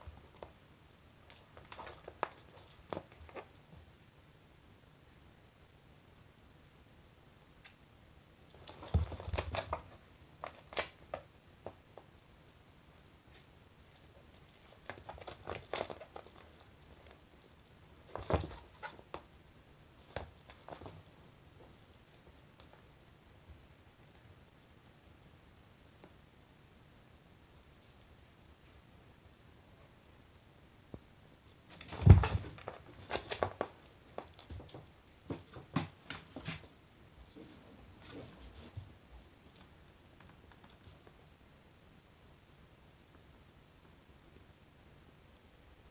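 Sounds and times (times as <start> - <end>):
cat scuffling and scratching: 0.0 - 4.0, 8.5 - 12.1, 13.3 - 22.9, 31.5 - 41.2.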